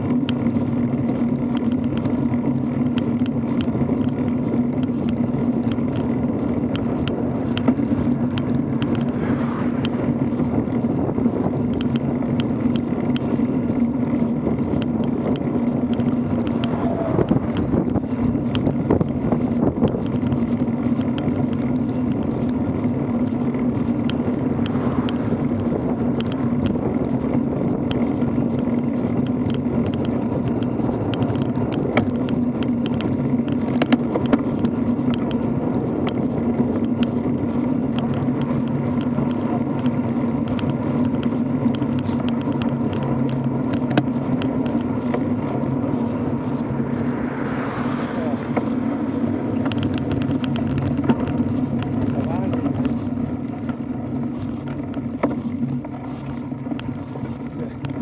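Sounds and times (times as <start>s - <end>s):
tyre and wind rumble: 0.0s - 58.0s
truck passing: 4.9s - 12.4s, 14.0s - 21.0s, 21.8s - 33.7s, 34.5s - 58.0s.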